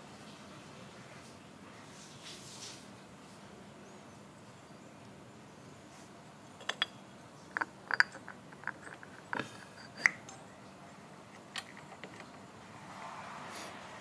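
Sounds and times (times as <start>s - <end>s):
metal parts and tools clinking: 6.6s - 10.4s, 11.3s - 12.4s.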